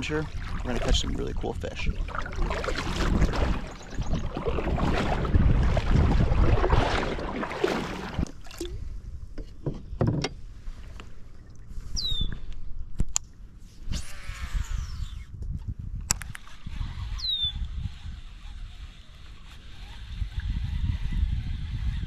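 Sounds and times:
paddle splashing through water: 0.0 - 8.8.

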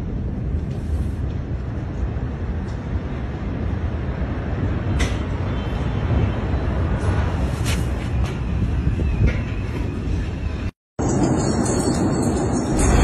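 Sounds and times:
low rumbling noise: 8.4 - 13.0.

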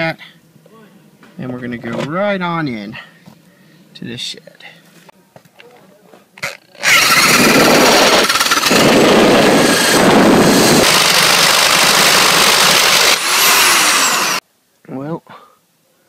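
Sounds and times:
electric drill boring wood: 6.4 - 14.4.

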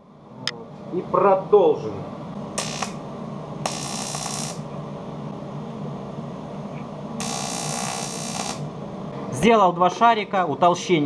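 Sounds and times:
steady low hum: 0.0 - 11.0
welding arc hissing and crackling: 2.6 - 3.0, 3.6 - 4.7, 7.2 - 8.8.

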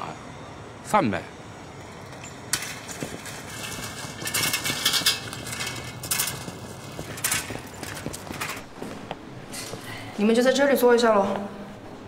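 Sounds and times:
bicycles clinking and rattling: 1.6 - 8.9.

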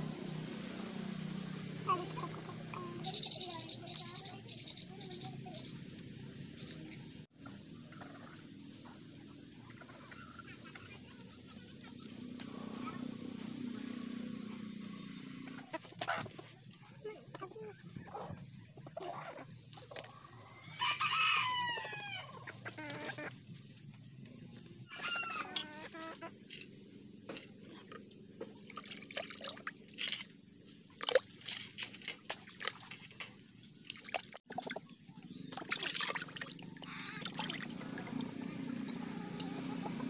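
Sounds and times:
chicken calling: 24.9 - 26.4
fish washed in bucket of water: 27.8 - 40.0.

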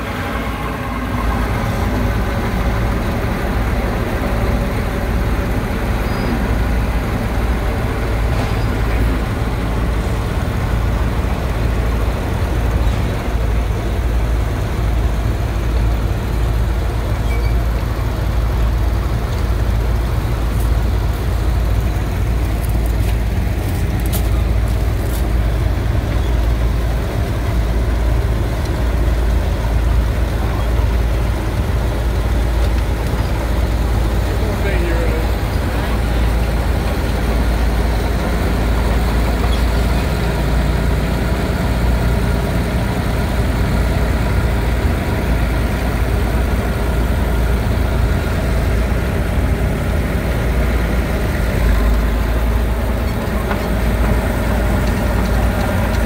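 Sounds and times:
tractor engine rumbling: 0.0 - 56.0.

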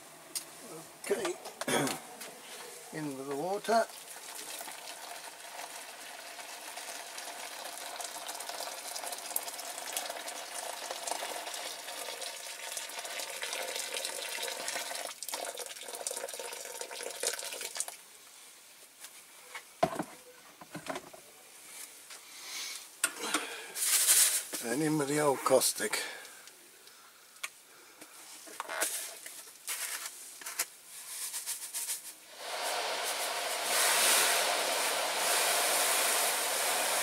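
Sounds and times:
water pouring into plastic tub: 3.7 - 18.0, 32.3 - 37.0.

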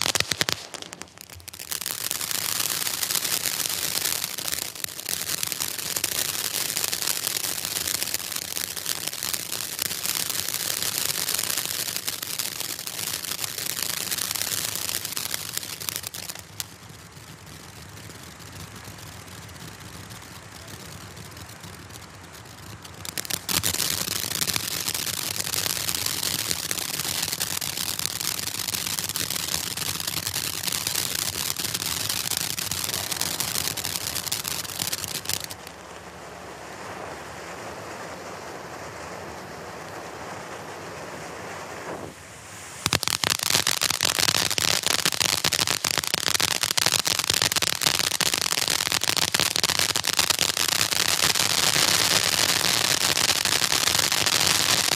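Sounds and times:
firework crackling: 0.0 - 54.9.

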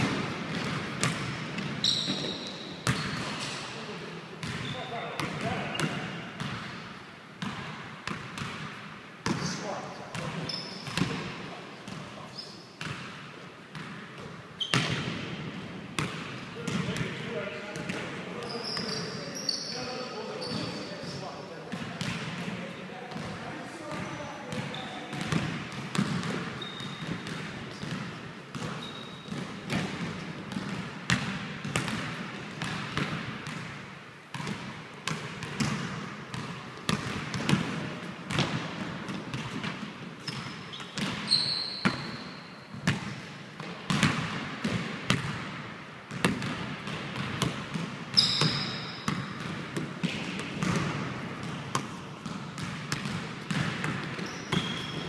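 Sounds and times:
basketball bouncing on wood floor: 0.0 - 3.2, 23.9 - 42.1, 42.8 - 45.4, 46.1 - 55.0
sneaker squeaks: 0.5 - 3.7, 4.4 - 6.2, 9.3 - 11.2, 11.9 - 13.0, 14.6 - 15.1, 17.8 - 21.6, 23.8 - 30.0, 40.2 - 43.0, 48.1 - 49.4, 52.6 - 55.0.

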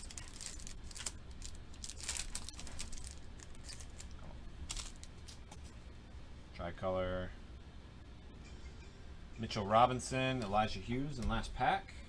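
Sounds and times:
foil wrapper crinkling: 0.0 - 5.7
low steady hum: 0.0 - 12.0.

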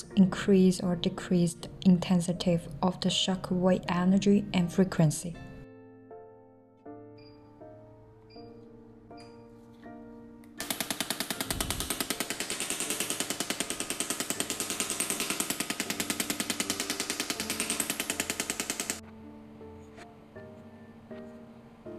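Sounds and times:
soft background music: 0.0 - 21.9
rapid mechanical impacts: 10.6 - 19.0.

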